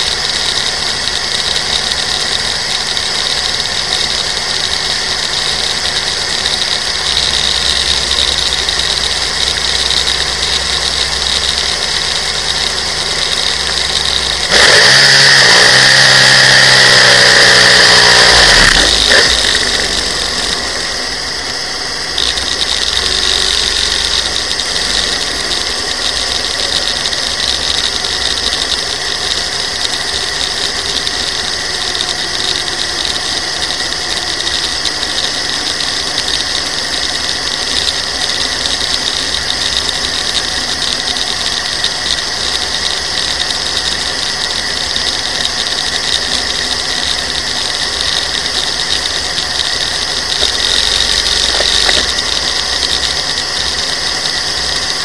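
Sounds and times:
dragster engine running: 0:00.0 - 0:55.0.

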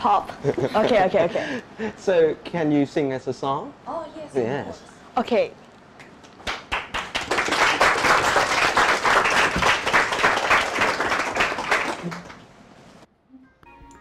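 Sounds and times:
people applauding: 0:06.4 - 0:12.5.

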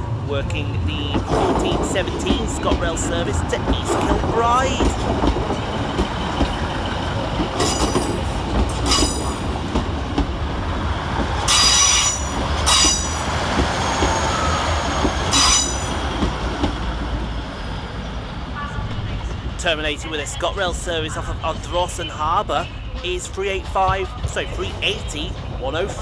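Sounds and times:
diesel train engines rumbling: 0:00.0 - 0:26.0
train wheels squealing: 0:11.5 - 0:16.0.

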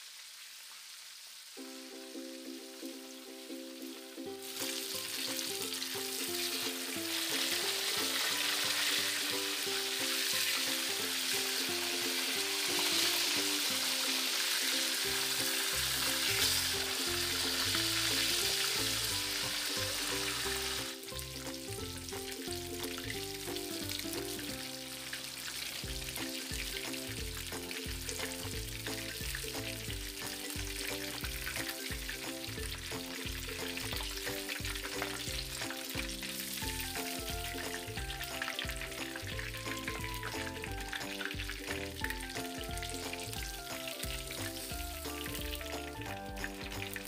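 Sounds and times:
fish frying in hot oil: 0:00.0 - 0:47.0
music with pulsing bass: 0:25.9 - 0:47.0.

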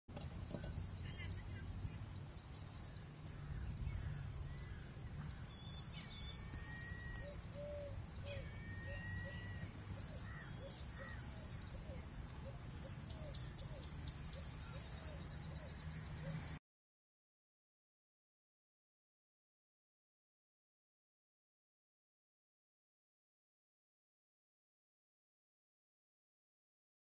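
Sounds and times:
high-pitched insect drone: 0:03.4 - 0:12.0.

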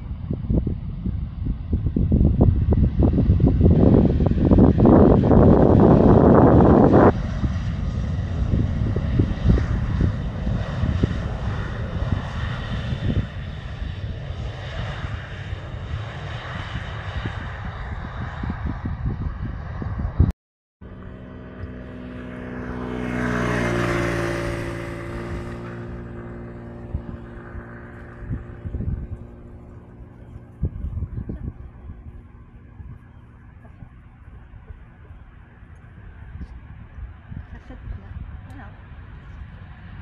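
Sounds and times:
wind buffeting microphone: 0:00.0 - 0:20.3, 0:20.9 - 0:40.0
distant jet engines rumbling: 0:00.0 - 0:40.0
motor vehicle passing by: 0:20.8 - 0:40.0.

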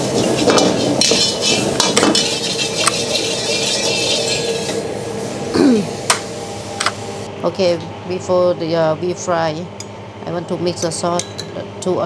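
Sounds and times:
metal ladle scraping a wok: 0:00.2 - 0:04.8.

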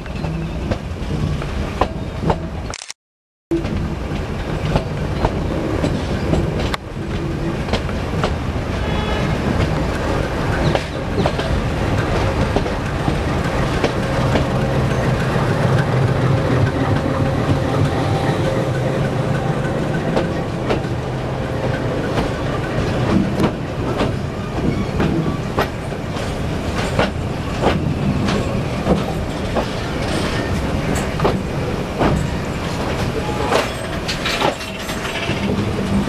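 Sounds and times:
train wheels clattering over rail joints: 0:09.4 - 0:16.0, 0:19.9 - 0:36.0.

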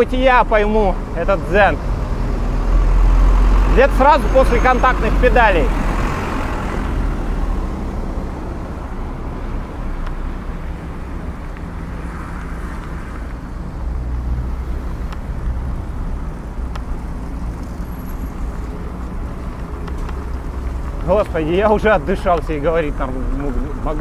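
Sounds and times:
car engines and tyres rumbling: 0:00.0 - 0:24.0
faint clicks: 0:19.4 - 0:21.4.

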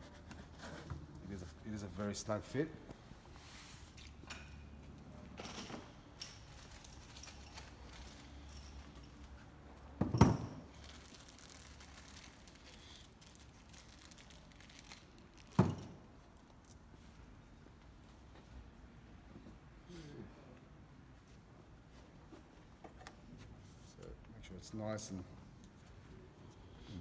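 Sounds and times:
metal hardware jingling in plastic bag: 0:05.4 - 0:09.4, 0:10.5 - 0:17.0.

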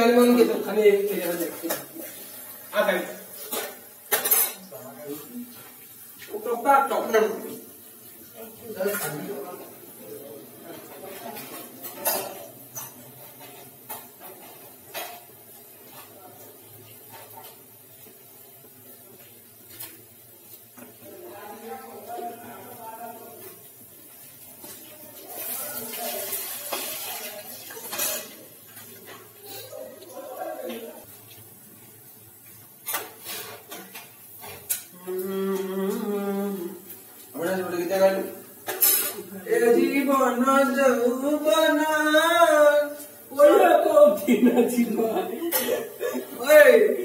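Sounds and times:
pots and pans clanking: 0:03.3 - 0:04.7, 0:10.7 - 0:16.2, 0:26.2 - 0:29.4, 0:32.8 - 0:34.9, 0:38.5 - 0:39.3.

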